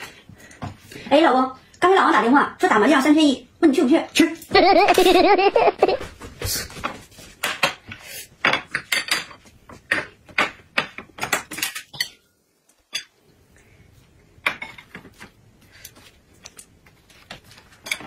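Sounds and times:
chopsticks and plates clattering: 0:08.4 - 0:12.3, 0:17.7 - 0:18.0.

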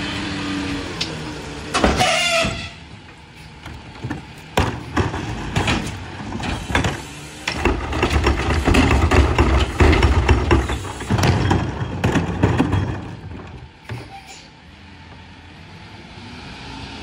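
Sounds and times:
hydraulic cart tipper: 0:00.0 - 0:14.6
garbage truck engine revving: 0:00.0 - 0:17.0
cart clattering and banging: 0:01.0 - 0:14.5
falling trash: 0:04.0 - 0:13.8.

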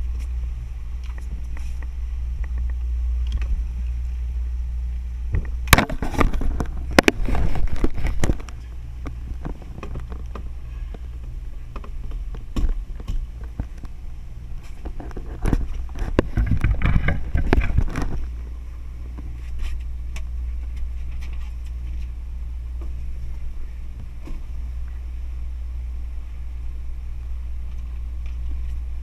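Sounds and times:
boat engine rumble: 0:00.0 - 0:29.0
knocks and rattles: 0:14.6 - 0:18.3.

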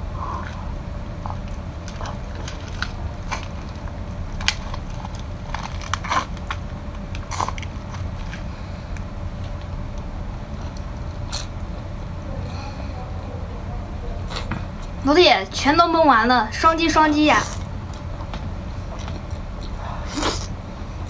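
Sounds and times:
steady low hum: 0:00.0 - 0:21.0
person chewing shellfish: 0:00.4 - 0:12.6, 0:18.8 - 0:20.6.

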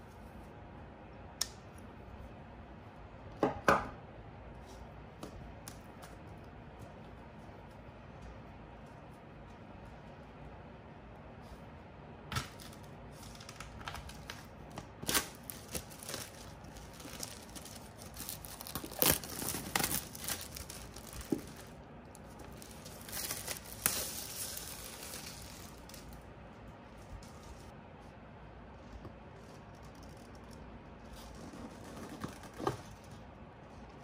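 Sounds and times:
plastic wrap crinkling and tearing: 0:12.4 - 0:26.2.

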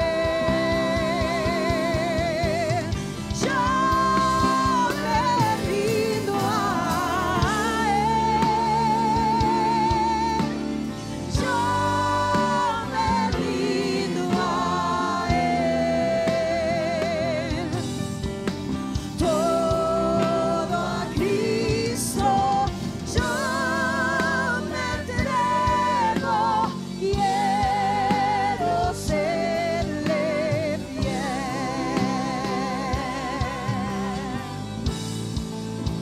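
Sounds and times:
person singing with vibrato: 0:19.1 - 0:34.8.

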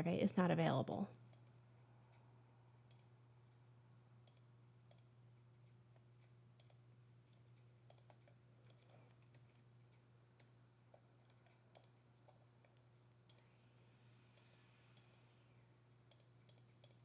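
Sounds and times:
low steady hum: 0:00.0 - 0:17.0
computer mouse clicks: 0:01.3 - 0:03.2, 0:04.2 - 0:13.6, 0:14.3 - 0:15.4, 0:16.0 - 0:17.0.

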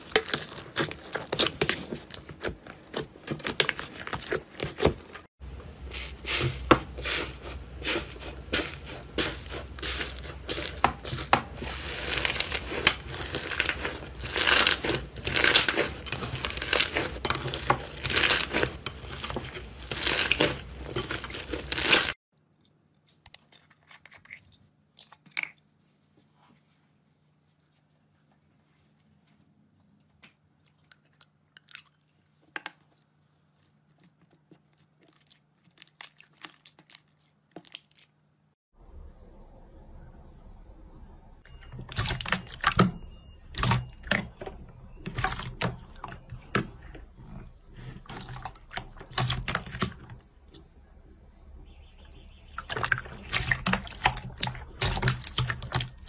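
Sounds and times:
slime crust crunching and crackling: 0:00.0 - 0:05.3, 0:05.9 - 0:22.2, 0:30.8 - 0:38.2.

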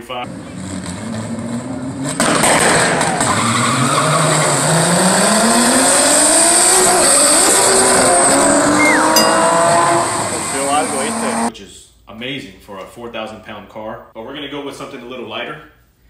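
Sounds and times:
drag car engines revving: 0:00.2 - 0:11.5.

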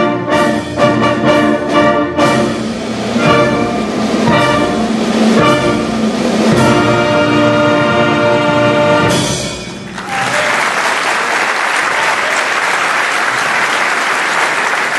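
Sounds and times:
audience applause: 0:09.9 - 0:14.9.

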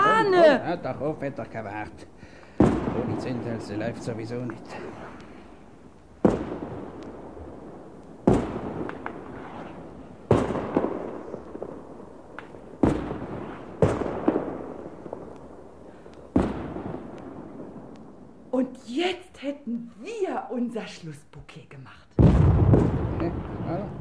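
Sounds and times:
small firework cracks: 0:00.0 - 0:18.6, 0:22.2 - 0:24.0
fireworks bangs with rumble: 0:00.8 - 0:18.0, 0:22.2 - 0:24.0.

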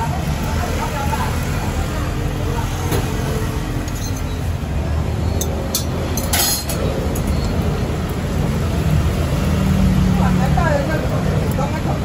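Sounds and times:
street food stall rumble: 0:00.0 - 0:12.0
metal tongs clinking on griddle: 0:03.9 - 0:04.4, 0:05.4 - 0:07.4.

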